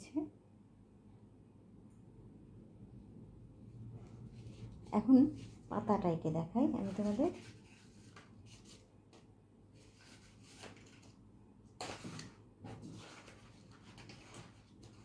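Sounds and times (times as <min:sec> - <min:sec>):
soft handling noises: 0:03.7 - 0:05.8, 0:06.6 - 0:11.2, 0:11.8 - 0:15.0.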